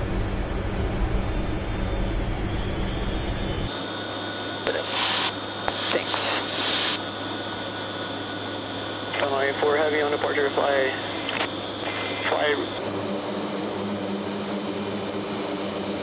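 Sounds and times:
turboprop engines droning: 0.0 - 16.0
intercom hum: 4.6 - 7.0, 9.1 - 16.0.

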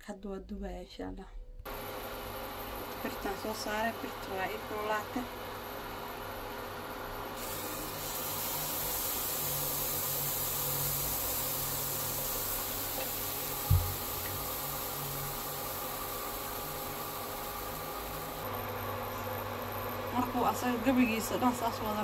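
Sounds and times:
pancake batter hissing in pan: 7.3 - 18.4
sharp knock: 13.7 - 14.0.

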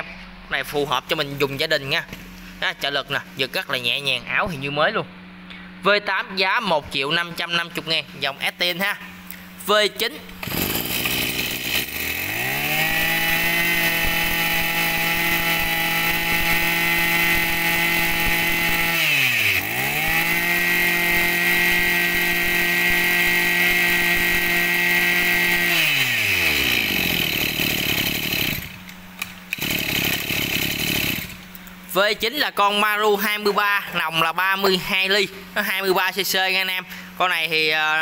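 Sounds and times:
brush cutter engine revving: 10.2 - 31.6.

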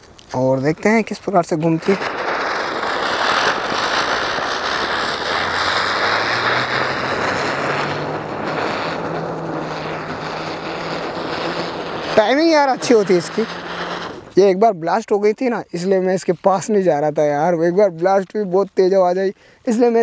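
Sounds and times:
spinner firework hissing: 0.6 - 14.7.

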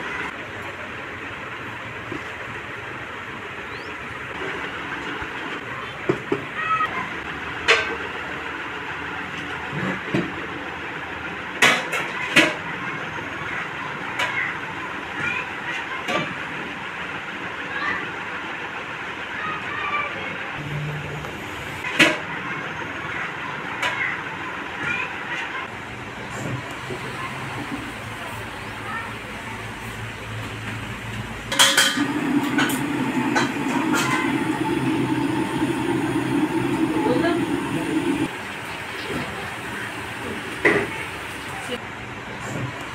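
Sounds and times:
steady rushing noise: 32.0 - 38.5.

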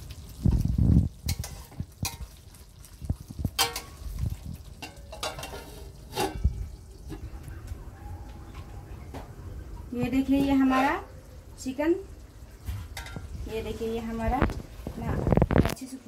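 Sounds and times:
metal spatula scraping a pan: 1.2 - 2.3, 3.6 - 4.0, 4.8 - 6.6, 10.4 - 11.1
metal lid clanking on a pan: 1.3 - 2.2, 3.6 - 4.0, 4.7 - 7.2, 12.9 - 13.3
metal-on-metal knocks: 12.7 - 13.3.

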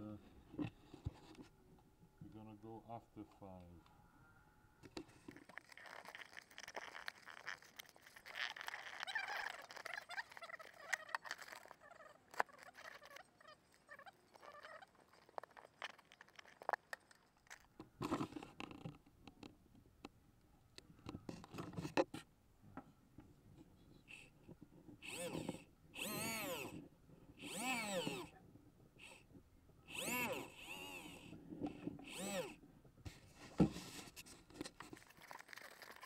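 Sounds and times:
camera handling clicks and rubbing: 4.9 - 19.5, 33.6 - 36.0.

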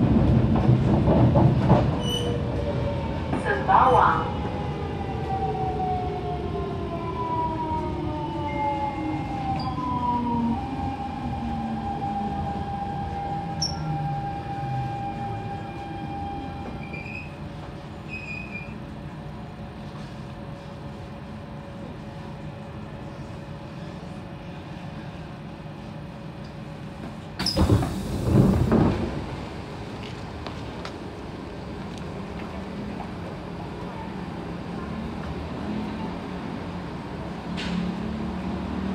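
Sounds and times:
train doors opening: 0.0 - 4.2, 8.5 - 18.8, 26.9 - 31.0, 37.3 - 38.1
steady train hum: 0.0 - 38.9.

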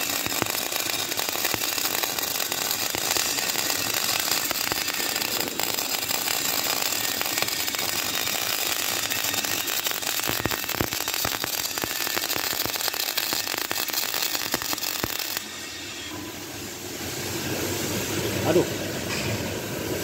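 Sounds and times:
arc welding crackling: 0.0 - 15.8.

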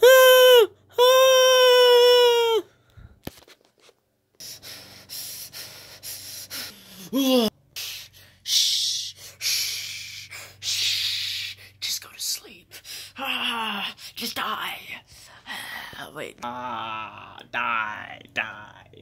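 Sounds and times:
person gasping for breath: 4.4 - 11.8.

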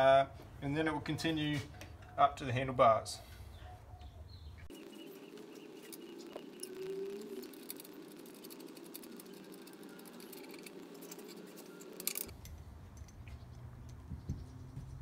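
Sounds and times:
low hum: 4.6 - 15.0.

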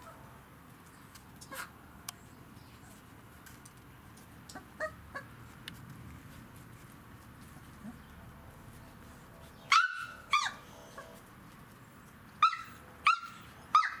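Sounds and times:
puppies yelping: 9.7 - 11.2, 12.4 - 14.0.

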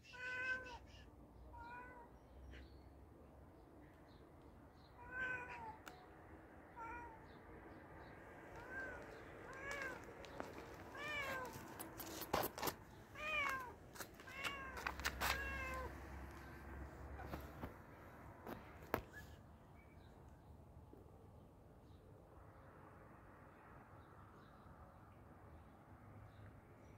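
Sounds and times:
cat meowing: 0.0 - 2.1, 5.0 - 6.0, 6.8 - 7.3, 8.6 - 10.1, 10.9 - 11.7, 13.2 - 16.0.

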